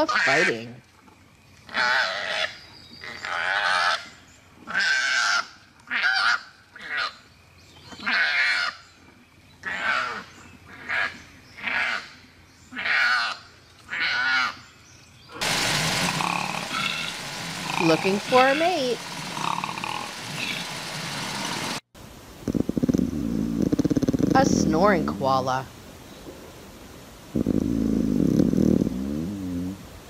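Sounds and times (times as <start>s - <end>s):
steady hiss: 15.4s - 30.0s
koalas screeching: 16.1s - 20.7s.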